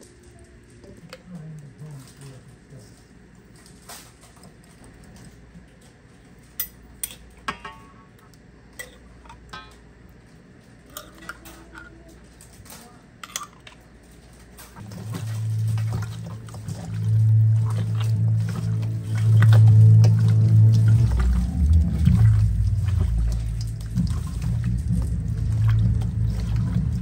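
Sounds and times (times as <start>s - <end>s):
dishes and utensils clinking: 6.6s - 8.1s, 10.9s - 12.0s, 13.2s - 13.8s
loud low hum: 14.6s - 27.0s.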